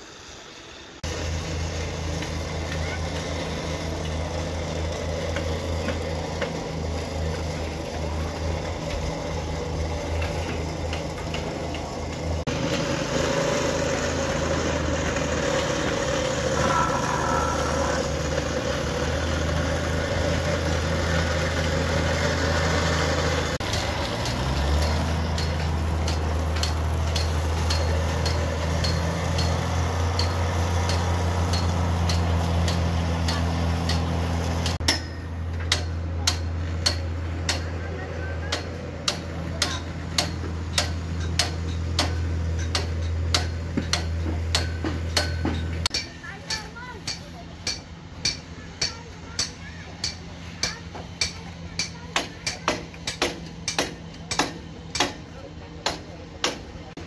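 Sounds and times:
engine running: 0.0 - 57.0
faint drone: 11.9 - 19.3.

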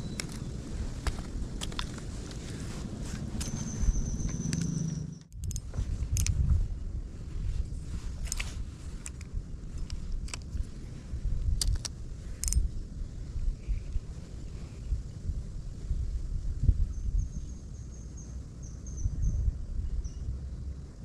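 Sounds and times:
wind rumble on microphone: 0.0 - 21.0
fishing reel clicks: 11.6 - 12.7.

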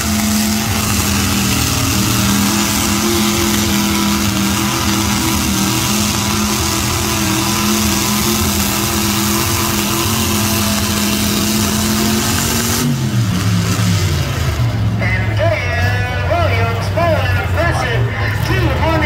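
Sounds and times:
engine revving under load: 0.0 - 15.2.

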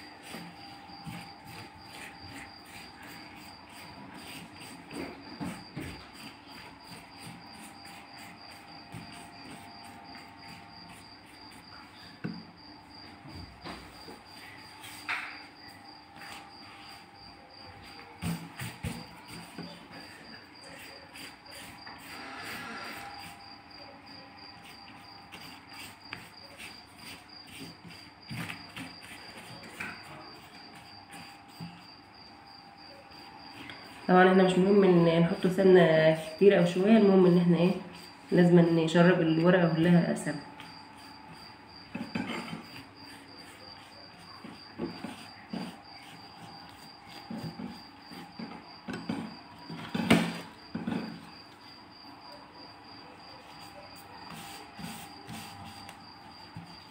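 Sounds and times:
cricket chirping: 0.0 - 56.9.

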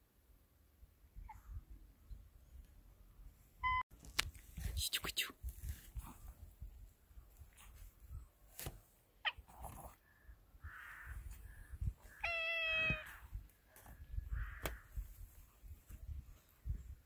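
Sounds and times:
cat meowing: 12.1 - 13.2.

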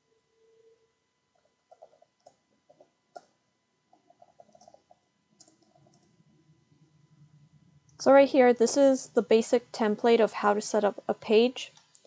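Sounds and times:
keyboard typing: 1.4 - 6.2.

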